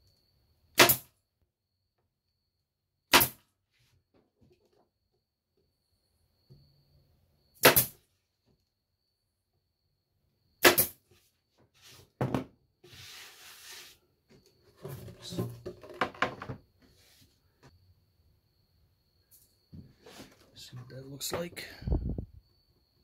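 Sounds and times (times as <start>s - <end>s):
nail gun shots: 0.8s - 1.1s, 3.1s - 3.4s, 7.6s - 8.0s, 10.6s - 11.0s
door knocking and clattering on bench: 12.2s - 12.5s.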